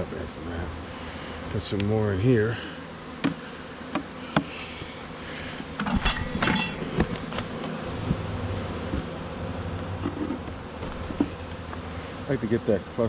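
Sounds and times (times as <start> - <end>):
bees buzzing: 0.0 - 13.0
hive tool scraping box: 1.4 - 7.9, 9.8 - 12.2.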